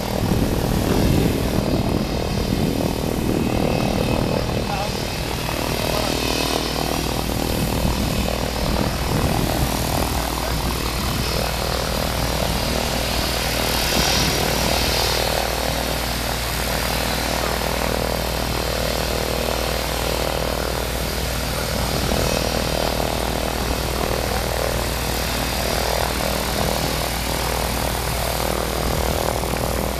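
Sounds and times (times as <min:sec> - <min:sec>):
light aircraft piston engine running: 0:00.0 - 0:29.9.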